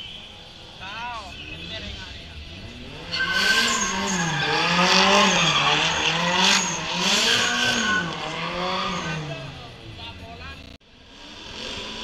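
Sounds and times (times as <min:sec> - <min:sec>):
car engine revving: 0:01.3 - 0:12.0
tyres squealing: 0:02.6 - 0:09.5.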